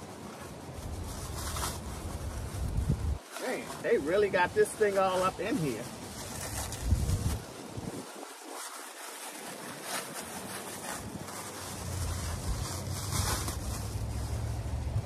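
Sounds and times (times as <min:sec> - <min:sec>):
plastic wrapping crinkling: 0:00.0 - 0:15.0
wind rumble on microphone: 0:00.2 - 0:03.3, 0:05.6 - 0:15.0.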